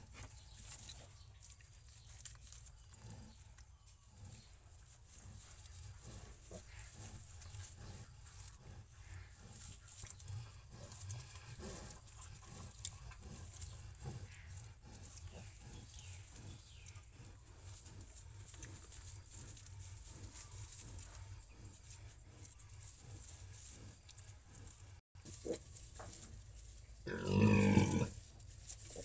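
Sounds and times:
pigs rustling and shuffling: 0.0s - 29.0s.

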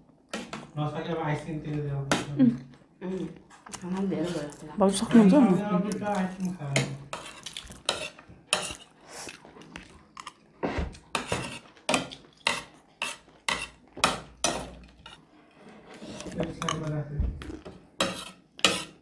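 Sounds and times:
cutlery clinking on plates: 6.7s - 8.9s.

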